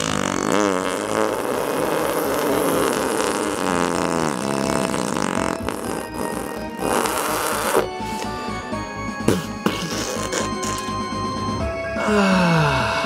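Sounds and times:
cartoon fart sound effect: 0.0 - 8.3, 9.2 - 11.2.

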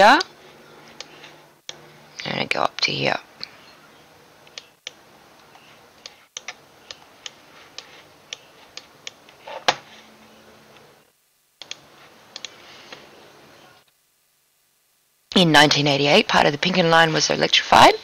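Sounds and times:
faint room hiss: 0.0 - 18.0
computer mouse clicking: 4.5 - 9.4, 11.6 - 12.6.

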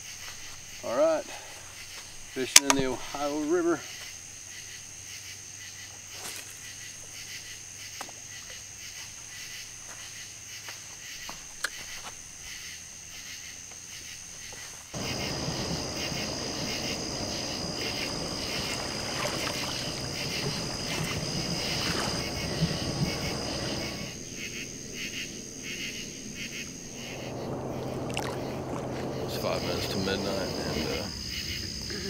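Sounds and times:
night insects chorus: 0.0 - 32.0
steady hiss: 14.9 - 32.0.

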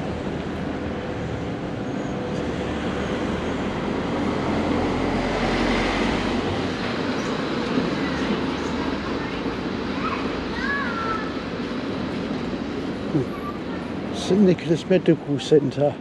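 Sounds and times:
street hiss: 0.0 - 16.0.

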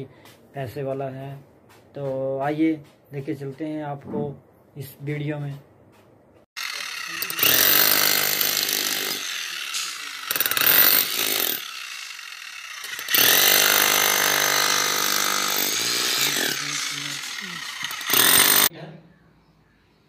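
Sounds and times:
demolition hammer breaking concrete: 7.2 - 12.1, 12.8 - 18.7.

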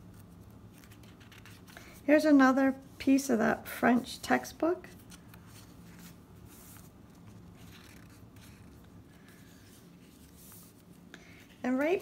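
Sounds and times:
paper rustling: 0.0 - 2.0, 4.8 - 12.0.

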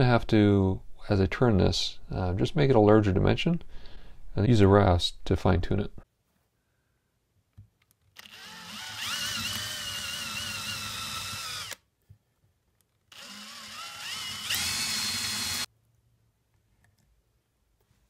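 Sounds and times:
power drill boring into wood: 8.2 - 11.8, 13.1 - 15.7.

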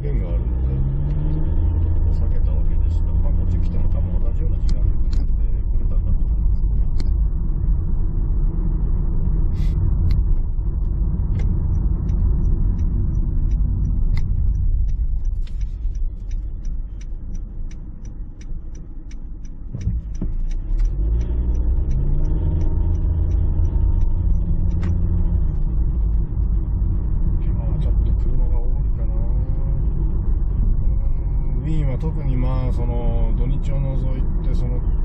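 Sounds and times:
car engine and road rumble: 0.0 - 35.0
light even ticking: 10.0 - 26.9.

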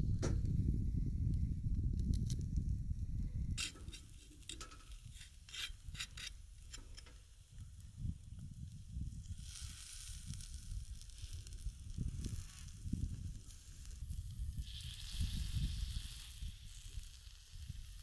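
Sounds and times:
ribs sizzling on a grill: 7.9 - 18.0.

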